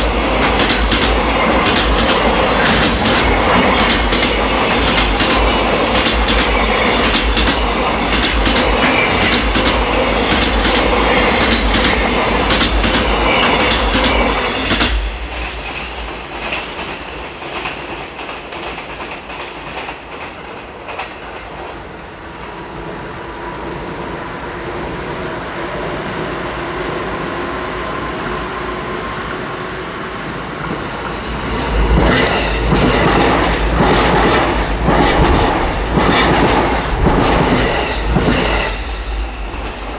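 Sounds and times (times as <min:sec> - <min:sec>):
train wheels clattering: 0:00.0 - 0:21.9, 0:30.6 - 0:39.9.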